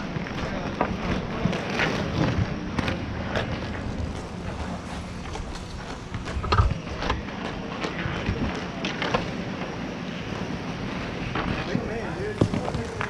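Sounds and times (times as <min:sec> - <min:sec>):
inline skate wheels rumbling: 0:00.0 - 0:13.0.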